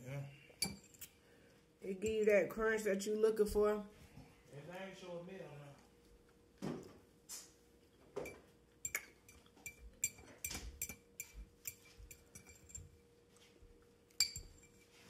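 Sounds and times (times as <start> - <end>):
fork clinking on ceramic bowl: 8.2 - 12.9, 14.1 - 14.9.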